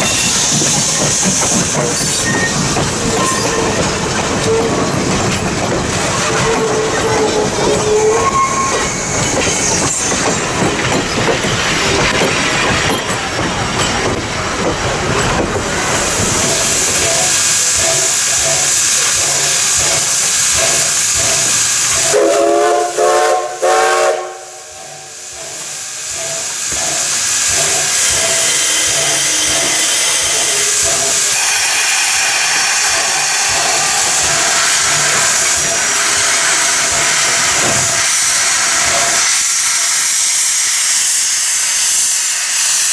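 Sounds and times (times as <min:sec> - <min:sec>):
steam hissing: 0:00.0 - 0:42.9
train wheels rumbling and clicking: 0:00.0 - 0:42.9
steam whistle blasts: 0:22.0 - 0:25.2.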